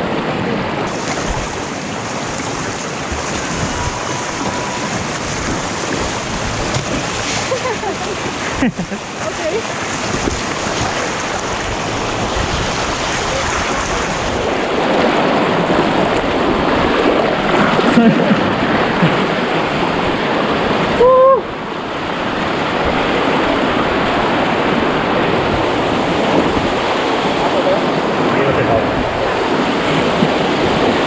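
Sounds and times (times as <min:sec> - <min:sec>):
river water rushing: 0:00.0 - 0:31.0
wind on microphone: 0:00.0 - 0:31.0
brief high-pitched tone: 0:03.6 - 0:05.6.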